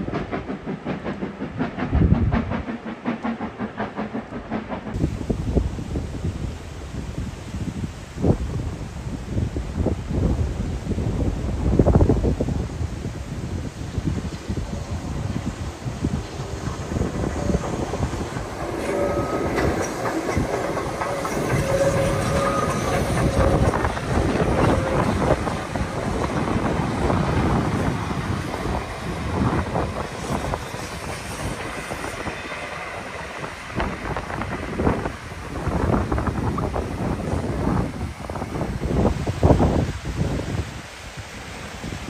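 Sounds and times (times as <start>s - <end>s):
steam train passing: 0.0s - 42.0s
wheels clattering over rail joints: 15.3s - 34.9s.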